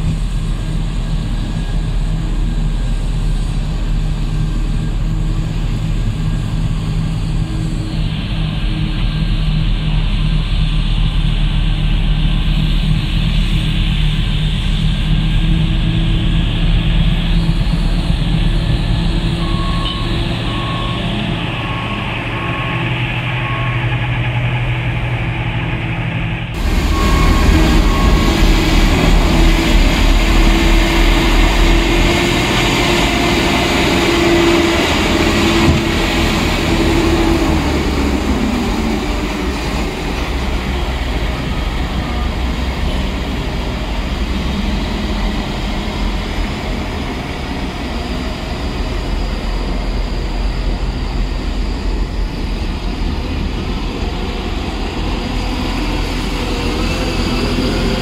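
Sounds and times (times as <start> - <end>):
droning machine tone: 0.0 - 58.0
heavy diesel machinery running: 0.0 - 58.0.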